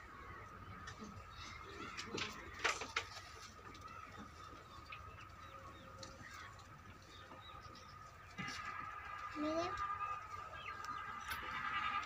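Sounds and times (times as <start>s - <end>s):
high-pitched hum: 8.3s - 12.0s.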